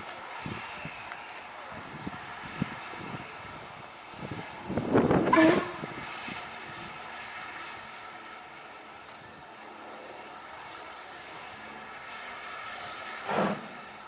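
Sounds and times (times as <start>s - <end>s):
steam train running: 0.0s - 14.0s
steam train burst: 5.2s - 6.3s, 12.4s - 13.9s.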